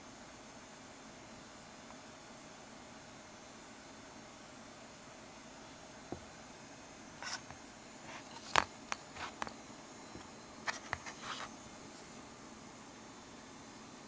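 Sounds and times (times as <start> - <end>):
steady low hiss: 0.0 - 14.0
circuit board clicks and scrapes: 7.2 - 9.6.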